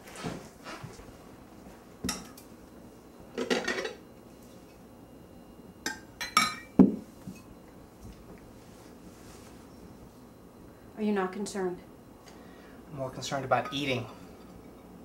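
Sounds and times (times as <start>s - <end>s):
kitchenware clattering: 3.4s - 4.0s, 5.9s - 7.5s.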